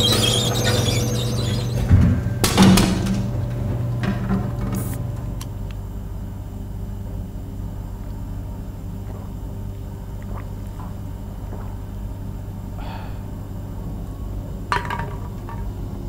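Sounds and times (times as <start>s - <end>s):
vending machine humming: 0.0s - 6.9s.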